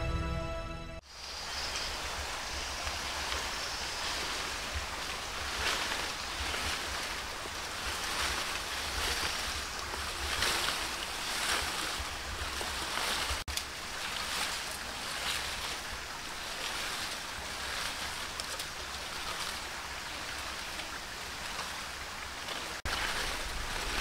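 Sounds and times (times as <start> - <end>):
wind buffeting microphone: 1.4 - 18.0, 22.9 - 24.0.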